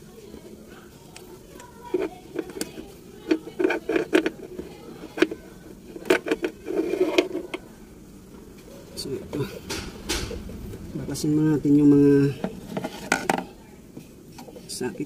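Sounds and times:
hard objects clicking and knocking: 0:01.6 - 0:07.6, 0:12.4 - 0:14.6.

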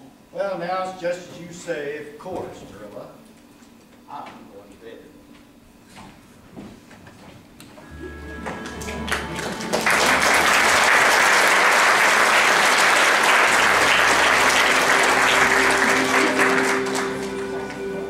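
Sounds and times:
soft instrumental music: 0:07.8 - 0:11.0, 0:13.3 - 0:18.0
audience applauding: 0:07.9 - 0:18.0.

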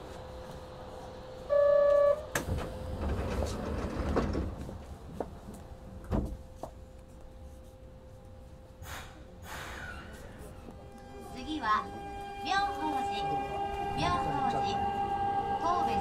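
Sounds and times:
train door buzzer: 0:01.5 - 0:02.5, 0:10.9 - 0:16.0
sliding doors shutting with thud: 0:02.3 - 0:05.0.

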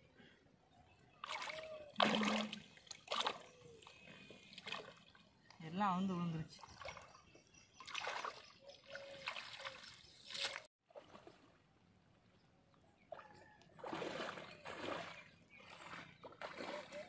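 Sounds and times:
shallow water splashing: 0:01.1 - 0:05.4, 0:06.4 - 0:11.6, 0:13.1 - 0:17.0.

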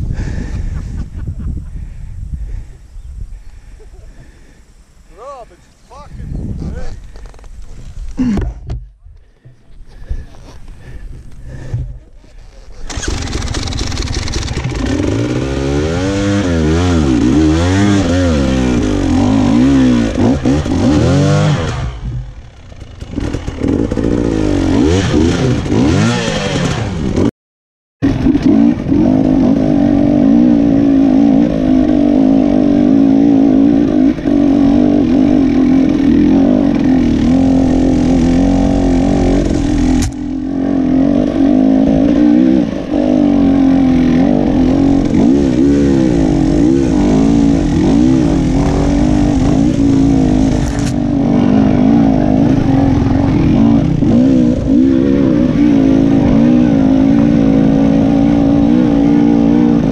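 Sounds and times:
dirt bike engine revving: 0:12.7 - 0:27.3, 0:28.0 - 0:59.9.

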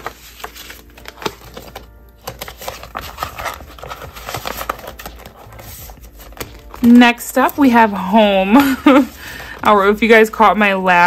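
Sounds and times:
paper bills rustling: 0:00.0 - 0:10.2.

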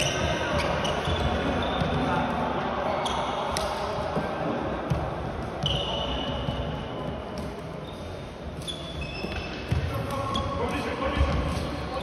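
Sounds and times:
sneaker squeak on court floor: 0:00.0 - 0:02.1, 0:03.0 - 0:03.5, 0:05.6 - 0:07.2, 0:07.8 - 0:11.4
echoing hall background: 0:00.0 - 0:12.0.

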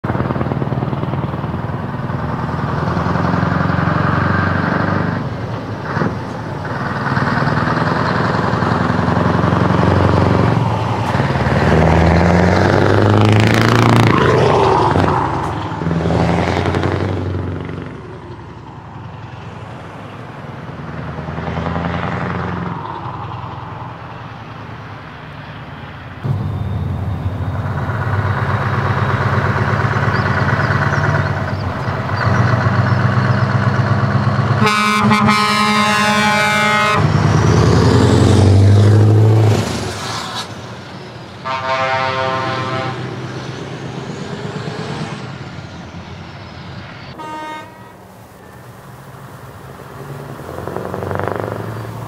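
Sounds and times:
heavy truck engine revving: 0:00.0 - 0:25.1, 0:26.2 - 0:52.0.

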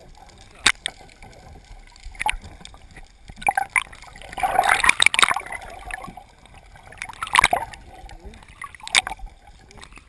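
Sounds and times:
water gurgling and splashing: 0:00.0 - 0:10.0.

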